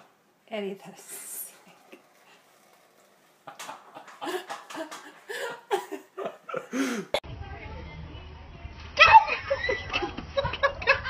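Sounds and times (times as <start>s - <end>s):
person laughing: 3.4s - 7.2s.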